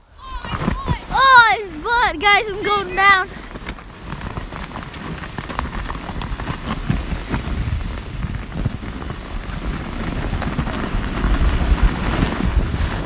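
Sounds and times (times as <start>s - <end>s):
wind buffeting microphone: 0.0s - 13.0s
handling clicks and rustles: 0.4s - 9.1s.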